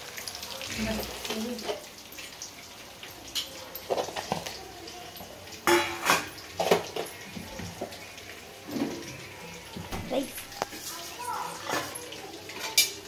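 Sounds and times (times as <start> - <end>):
pots and spoon clinking: 3.3 - 4.6, 5.2 - 8.0, 8.6 - 9.3, 11.5 - 13.0.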